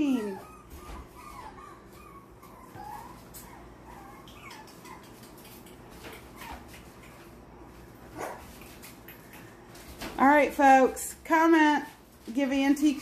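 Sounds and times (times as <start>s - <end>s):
puppy crying: 0.0s - 5.3s
puppies whimpering and yipping: 0.0s - 7.2s.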